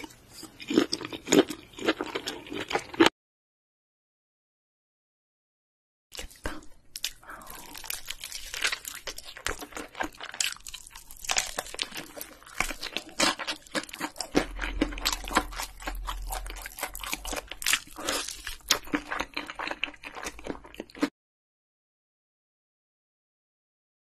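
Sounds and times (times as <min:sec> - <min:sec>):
wet chewing: 0:06.1 - 0:21.1
crispy crust crunching: 0:06.2 - 0:21.1.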